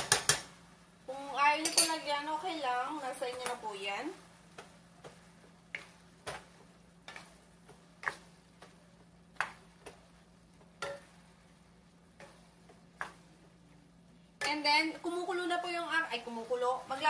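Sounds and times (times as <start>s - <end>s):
faint sizzle: 0.0s - 17.0s
wooden spoon scraping a pan: 4.5s - 13.5s.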